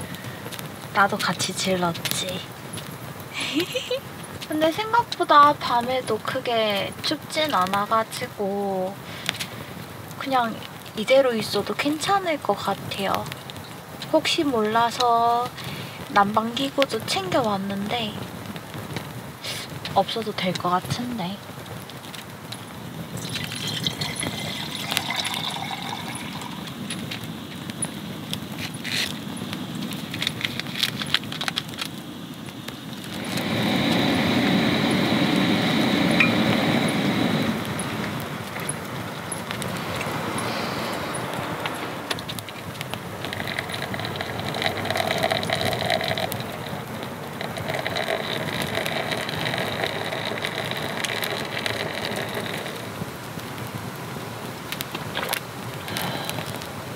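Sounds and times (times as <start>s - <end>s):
hot water pouring over coffee: 23.0s - 27.9s, 33.0s - 53.1s
water pouring into kettle: 23.2s - 26.8s, 43.2s - 46.7s, 47.4s - 52.9s
rushing noise: 32.9s - 53.9s.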